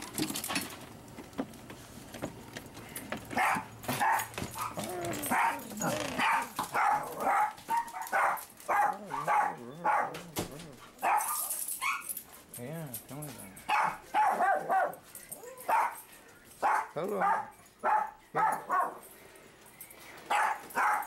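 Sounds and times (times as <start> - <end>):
dog barking: 3.3 - 12.2, 13.6 - 19.0, 20.3 - 21.0.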